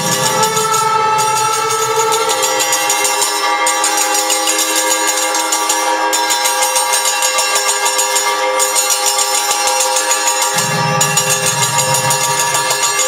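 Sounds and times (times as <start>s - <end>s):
sustained tone: 0.0s - 3.5s, 10.5s - 13.0s
bells and cymbals ringing: 0.0s - 13.0s.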